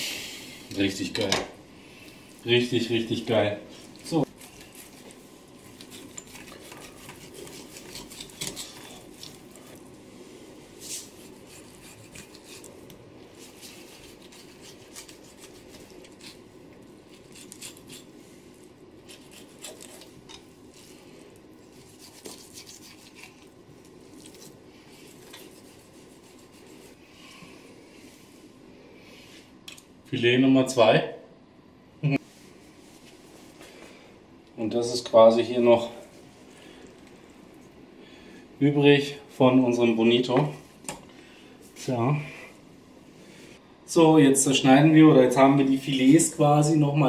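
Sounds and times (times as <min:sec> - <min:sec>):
knife scraping along fish bones: 0:04.2 - 0:09.8, 0:10.8 - 0:21.0, 0:21.6 - 0:23.6, 0:24.2 - 0:27.0.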